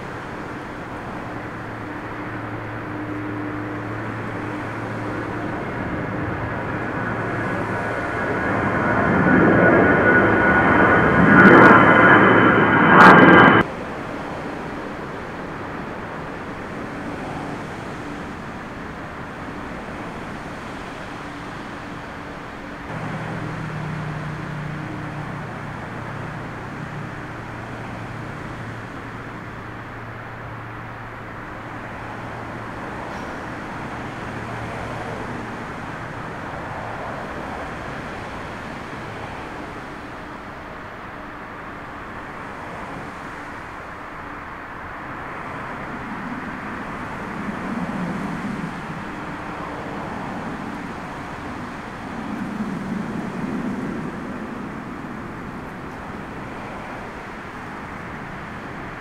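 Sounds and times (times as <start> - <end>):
wind on microphone: 0.0 - 15.0, 45.7 - 59.0
distant jet engines rumbling: 0.0 - 59.0.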